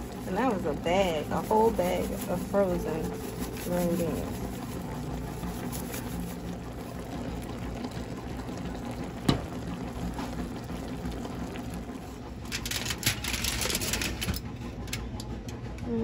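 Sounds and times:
aluminum foil crinkling: 0.0s - 7.1s, 12.5s - 14.3s
pot bubbling: 0.0s - 14.3s.

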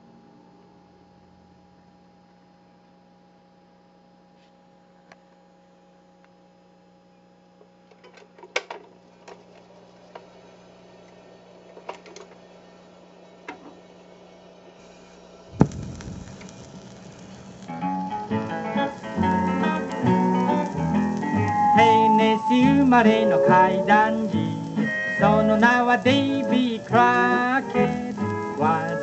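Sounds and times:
faint hiss: 14.8s - 29.0s
record clicks and crackles: 14.8s - 29.0s
low hum: 14.9s - 29.0s.

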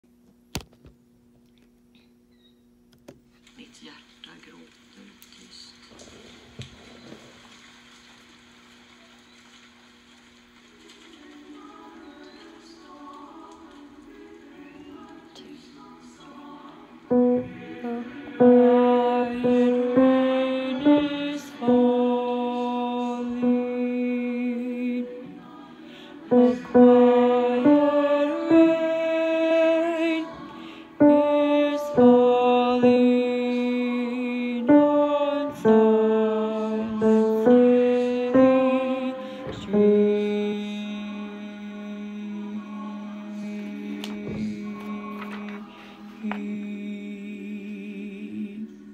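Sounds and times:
man singing slow melody: 11.2s - 48.9s.

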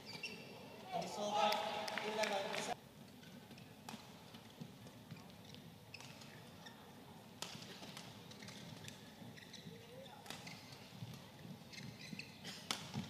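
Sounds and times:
shoes squeaking on court: 0.0s - 1.2s, 3.1s - 13.0s
racket hitting shuttlecock: 3.5s - 4.5s, 7.4s - 9.1s, 10.2s - 13.0s.

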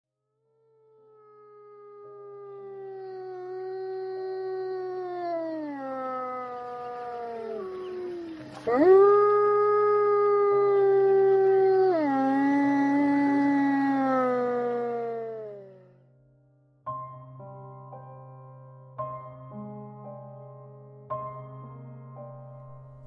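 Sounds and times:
wolf howling: 0.8s - 15.9s.

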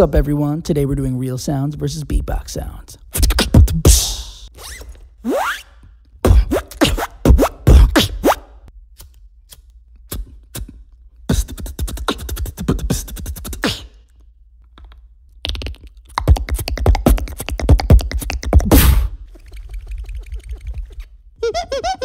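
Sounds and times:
beatboxer hiss: 3.1s - 4.5s, 6.3s - 8.4s, 10.1s - 14.0s
beatboxer mouth clicks: 3.1s - 5.0s, 6.2s - 8.4s, 9.0s - 21.1s.

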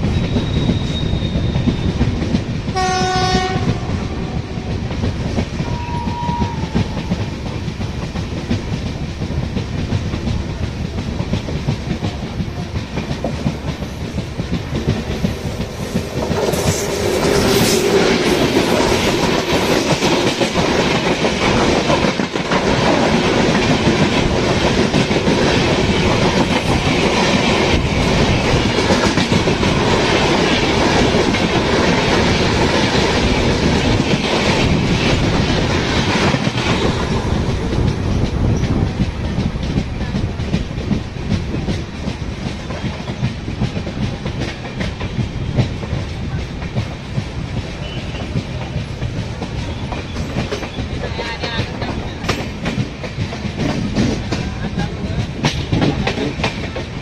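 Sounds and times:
passing electric train: 0.0s - 57.0s
train wheels clattering over rail joints: 0.0s - 57.0s
train horn blast: 2.7s - 4.7s, 5.6s - 7.0s.

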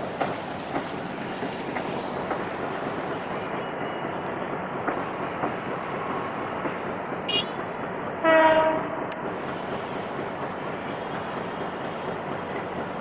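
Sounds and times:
train cars rolling past: 0.0s - 13.0s
train horn blast: 7.3s - 7.6s, 8.2s - 9.0s.

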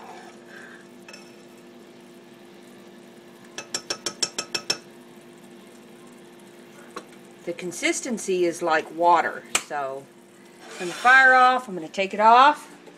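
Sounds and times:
metal spoon clinking on saucepan: 1.1s - 1.4s, 3.6s - 4.9s.

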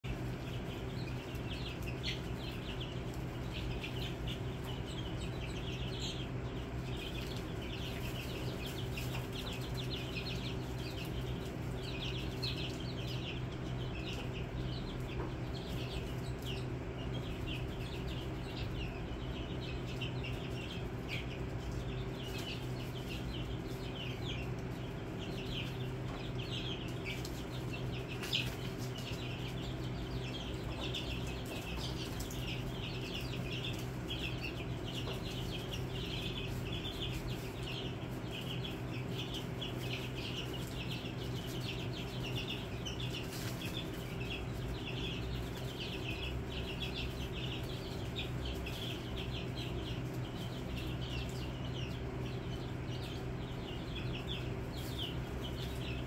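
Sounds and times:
chicks peeping: 0.0s - 56.0s
steady low hum: 0.0s - 56.0s.

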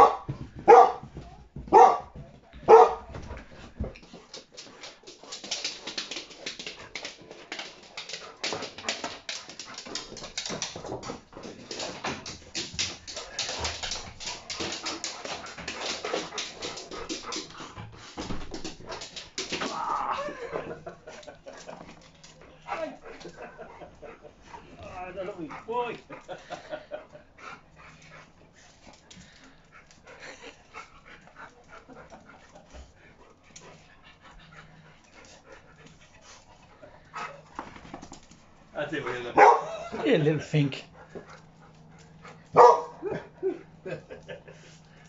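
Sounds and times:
dog barking: 0.0s - 1.1s, 1.7s - 3.1s, 39.3s - 39.8s, 42.6s - 43.1s.

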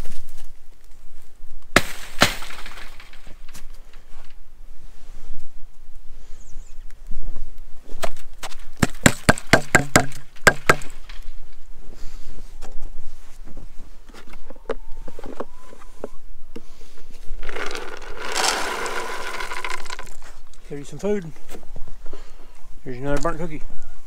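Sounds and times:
sharp knocks and crunches: 1.6s - 4.4s, 8.0s - 11.7s, 17.4s - 20.5s
dry kibble poured into a bowl: 17.4s - 20.2s.

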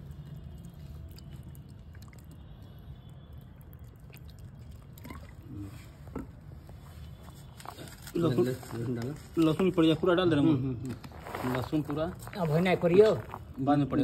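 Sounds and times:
oil trickling over chicken: 0.0s - 6.1s.

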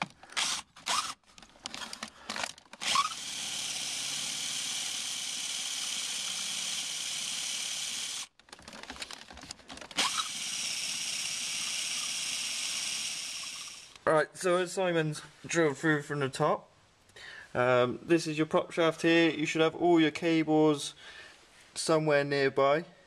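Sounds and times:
cordless drill boring: 0.0s - 8.4s, 9.8s - 14.0s.

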